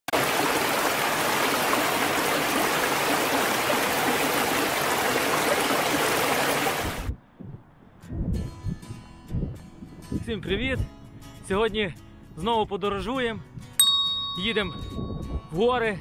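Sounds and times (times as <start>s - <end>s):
stream rushing over rocks: 0.1s - 7.1s.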